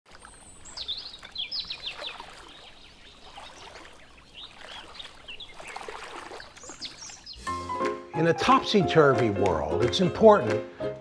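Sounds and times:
water trickling: 0.1 - 7.4
birds chirping: 0.1 - 8.6.

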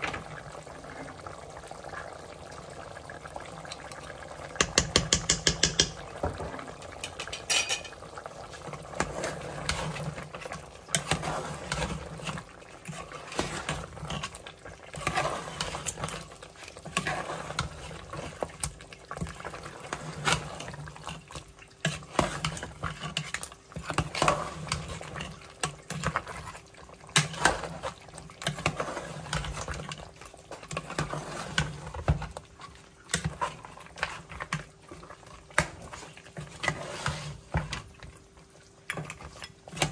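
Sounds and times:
metal utensils scraping cooking pot: 7.0 - 8.0, 8.9 - 30.0, 35.6 - 37.7.

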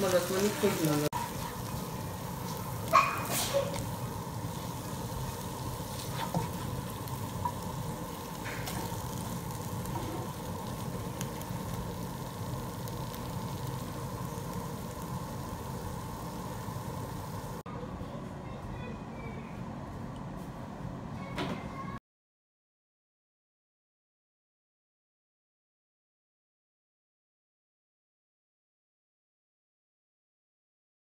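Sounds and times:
food sizzling in a skillet: 0.0 - 17.6
spatula scraping a pan: 4.8 - 7.7.

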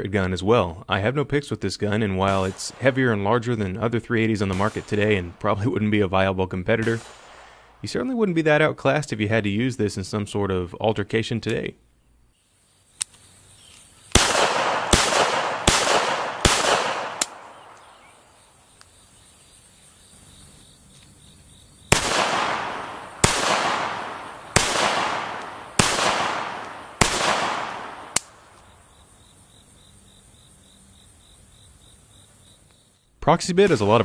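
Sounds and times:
pistol shots: 2.2 - 3.2, 4.4 - 5.4, 6.8 - 7.8, 14.1 - 18.2, 21.8 - 28.8
sharp pistol click: 14.1 - 18.1, 21.9 - 28.7.

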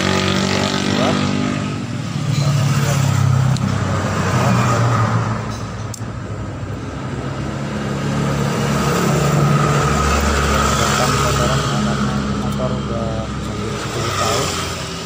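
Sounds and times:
vehicle engine running: 6.1 - 15.0.

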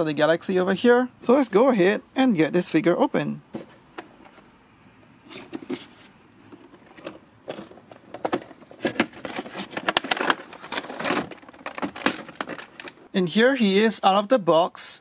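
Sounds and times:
plastic packaging crinkling: 5.5 - 13.1.

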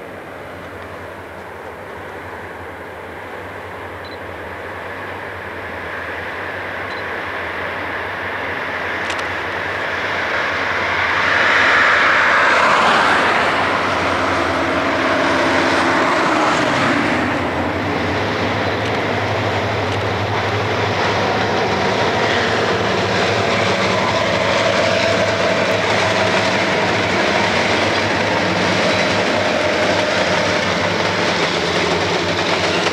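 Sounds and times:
diesel locomotive engines droning: 0.0 - 32.9.

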